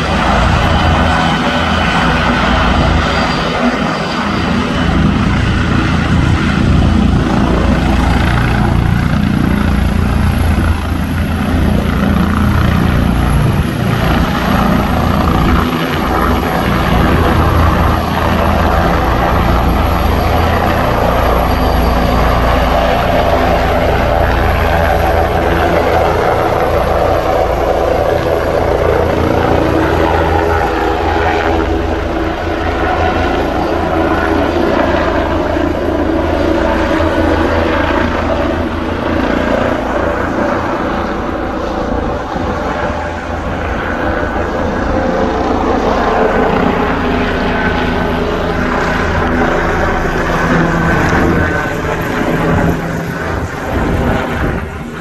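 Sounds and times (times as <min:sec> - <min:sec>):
helicopter engine and rotor: 0:00.0 - 0:55.0.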